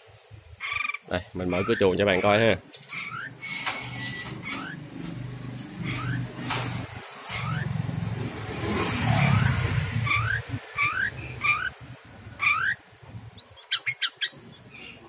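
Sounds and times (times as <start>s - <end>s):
bird chirping: 0.6s - 5.0s, 5.8s - 6.5s, 8.7s - 12.8s, 13.4s - 15.0s.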